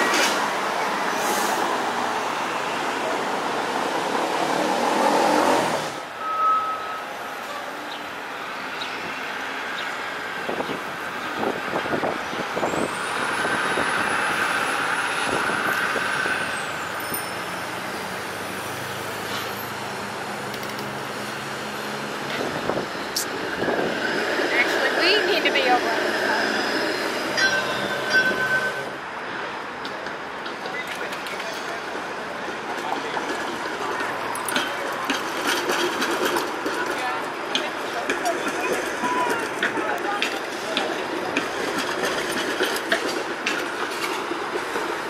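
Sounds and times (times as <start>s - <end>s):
city traffic: 0.0s - 45.0s
streetcar running past: 0.0s - 45.0s
streetcar knocks on tracks: 32.5s - 45.0s.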